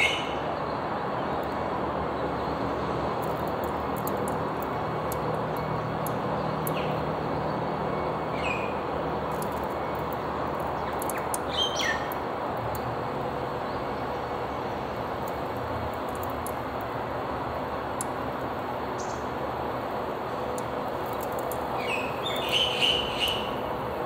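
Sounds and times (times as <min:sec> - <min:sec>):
bird chirping: 0:06.4 - 0:08.8, 0:10.8 - 0:12.2, 0:19.0 - 0:19.3, 0:21.8 - 0:23.6.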